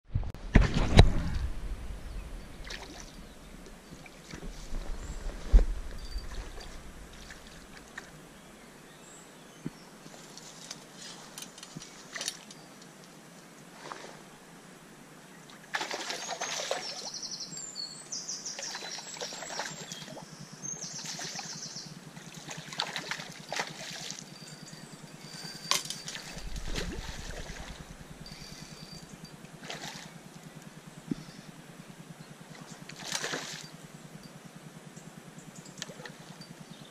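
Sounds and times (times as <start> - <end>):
bird calls: 2.0 - 9.8, 16.0 - 29.4
river water trickling: 2.1 - 36.9.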